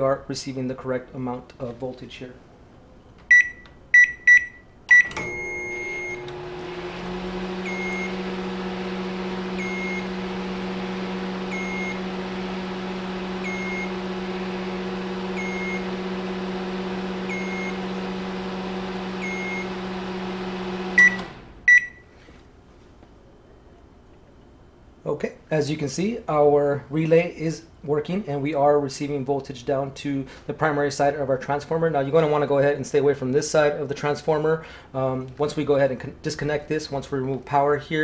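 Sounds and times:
microwave beeps: 3.3s - 6.6s, 7.3s - 22.1s
microwave oven humming: 4.4s - 22.1s.

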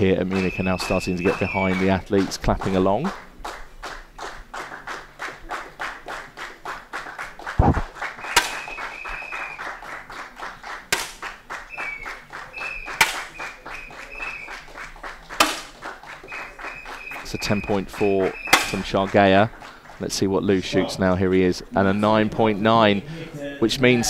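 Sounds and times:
audience clapping in rhythm: 0.0s - 20.4s
air rifle shots: 7.6s - 8.7s, 10.9s - 11.3s, 13.0s - 13.4s, 15.4s - 15.8s, 18.4s - 18.9s.

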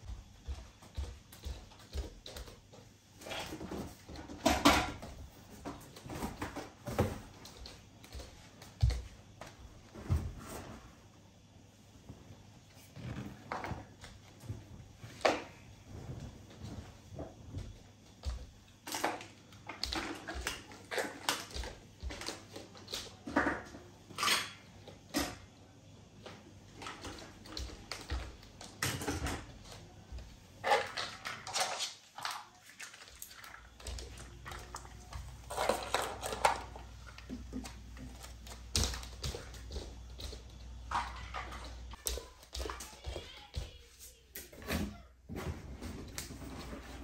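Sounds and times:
plastic toys clattering on wooden floor: 3.2s - 9.0s, 18.2s - 25.4s, 30.6s - 43.8s.

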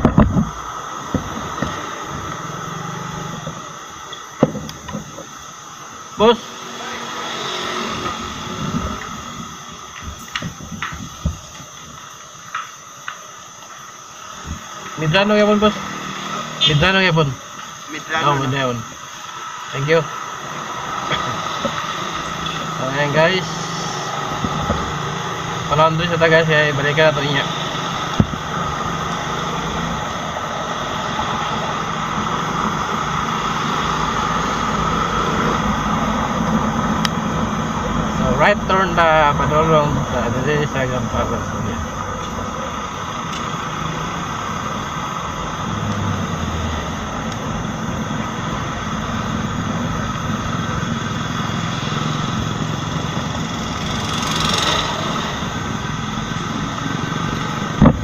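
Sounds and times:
wind and road noise: 0.0s - 58.0s
motorcycle rolling to a stop: 21.0s - 58.0s
motorcycle engine running: 41.1s - 58.0s.

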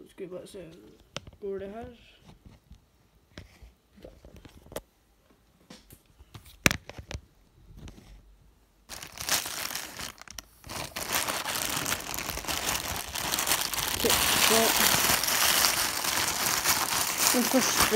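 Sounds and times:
plastic bag crinkling: 8.9s - 17.9s
plastic bag tearing crack: 8.9s - 17.9s.

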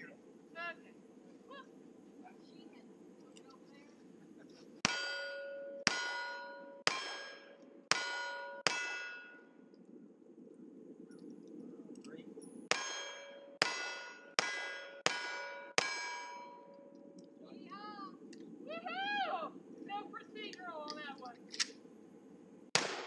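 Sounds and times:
steel plate ringing: 4.8s - 9.6s, 12.7s - 17.2s
rifle shots: 22.7s - 23.0s.

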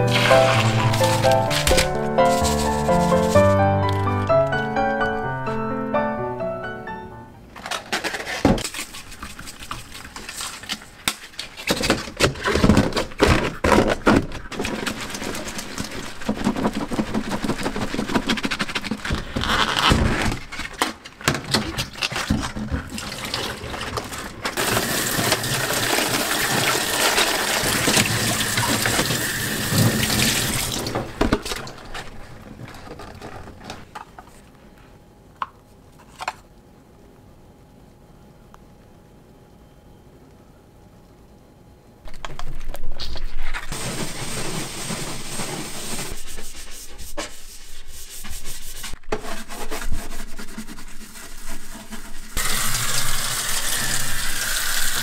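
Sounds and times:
scrubbing plastic container: 0.0s - 3.6s, 13.4s - 19.2s, 21.8s - 31.0s, 43.7s - 53.2s.

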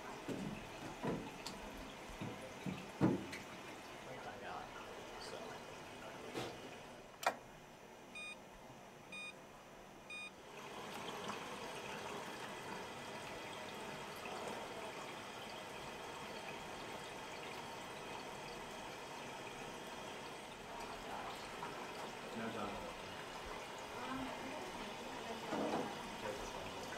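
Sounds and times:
water running in a sink: 0.0s - 7.0s, 10.4s - 26.9s
short electronic beeps: 8.2s - 8.4s, 9.1s - 9.4s, 10.1s - 10.3s.

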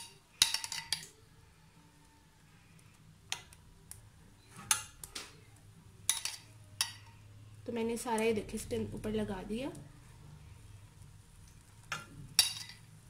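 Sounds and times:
spoon tapping frying pan: 11.8s - 12.8s.

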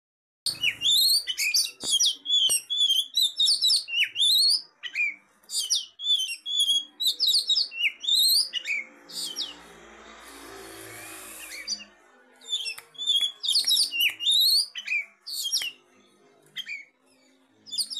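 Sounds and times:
bird whistling and chirping: 0.5s - 9.6s, 12.5s - 15.7s, 17.7s - 17.9s.

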